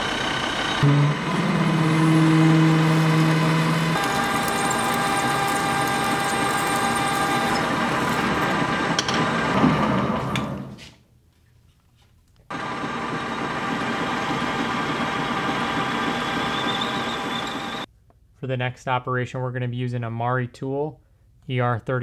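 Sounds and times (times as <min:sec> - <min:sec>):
strong low hum: 0:00.0 - 0:10.3
metal lathe whine: 0:00.0 - 0:10.7, 0:12.5 - 0:17.9
drill boring into metal bar: 0:00.4 - 0:09.1.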